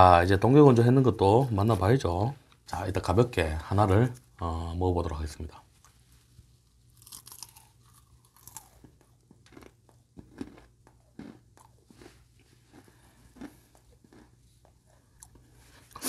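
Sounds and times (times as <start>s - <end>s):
person chewing crisp food: 6.7s - 16.0s.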